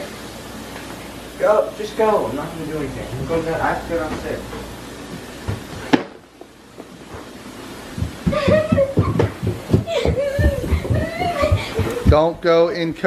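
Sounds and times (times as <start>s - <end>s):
footsteps on carpeted stairs: 3.1s - 5.9s, 6.7s - 12.8s.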